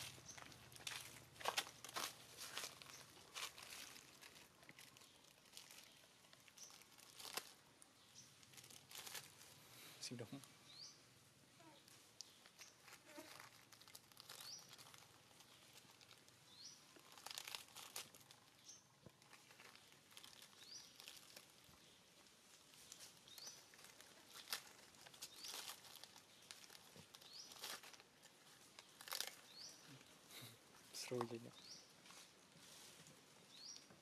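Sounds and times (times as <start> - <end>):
plastic bag crinkling: 0.0 - 9.6, 12.2 - 21.9, 22.5 - 30.1.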